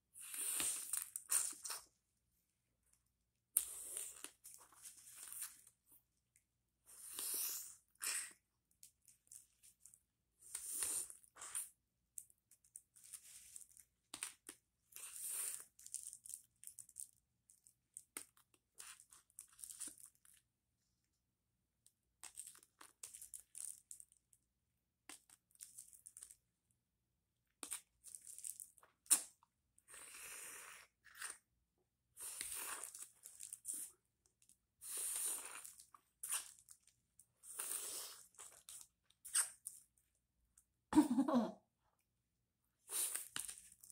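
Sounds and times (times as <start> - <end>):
wet sucking and smacking mouth: 34.8 - 36.6.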